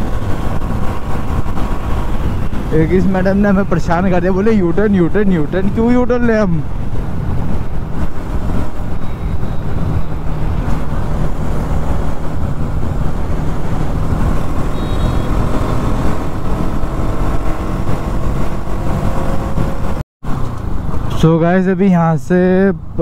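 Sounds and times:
wind rushing over microphone: 0.0s - 21.2s
motorcycle engine running: 6.7s - 20.0s.

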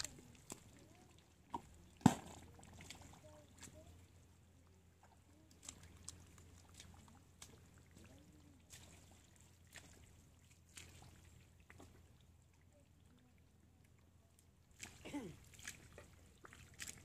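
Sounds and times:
squelching in watery mud: 0.0s - 4.3s, 4.9s - 13.2s, 14.6s - 17.0s
sharp wet smacks: 16.5s - 17.0s.

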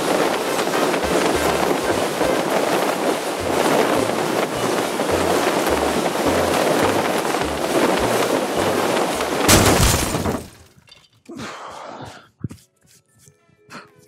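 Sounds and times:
rushing wind: 0.0s - 10.5s
cloth rustling: 0.0s - 10.6s
loud crash: 9.4s - 10.7s.

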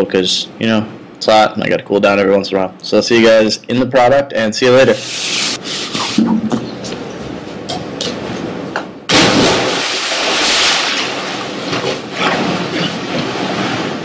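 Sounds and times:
person splashing into pool: 9.1s - 13.1s
water churning: 9.1s - 14.0s.

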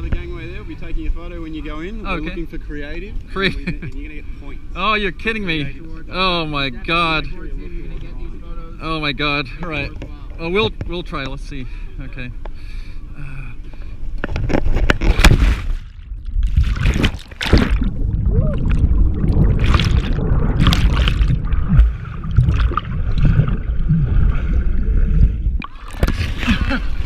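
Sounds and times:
underwater bubbling and gurgling: 14.1s - 27.0s
person splashing into water: 15.1s - 23.7s, 25.6s - 27.0s.

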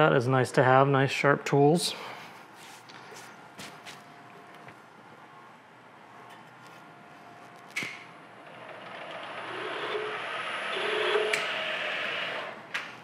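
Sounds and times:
milling spindle cutting metal: 8.5s - 12.6s.

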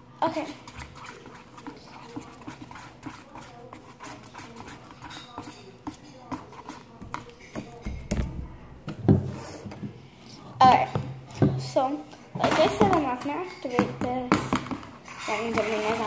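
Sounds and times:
spoon stirring sticky glue: 0.2s - 9.9s.

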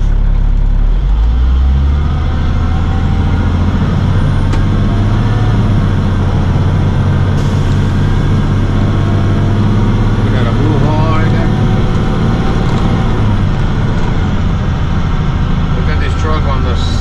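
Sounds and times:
truck engine accelerating: 0.0s - 17.0s.

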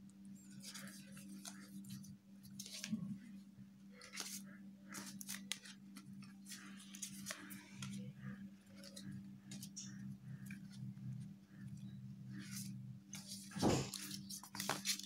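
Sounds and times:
steady low hum: 0.0s - 14.5s
paper sheets rustling: 12.4s - 15.0s.

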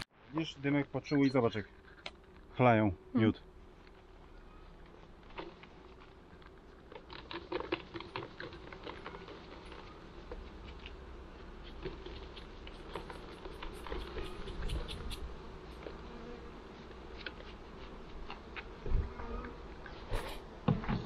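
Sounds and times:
honeybees buzzing: 7.8s - 20.9s.

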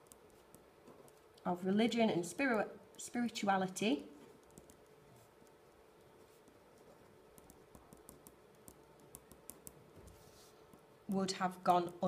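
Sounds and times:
pen stroke ticks: 6.4s - 10.2s.

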